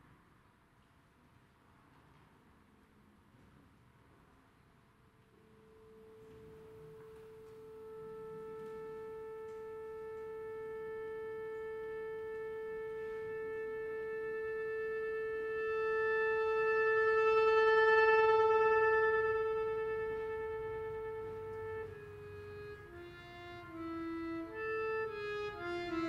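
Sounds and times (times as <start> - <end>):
accordion holding long note: 5.6 - 26.0.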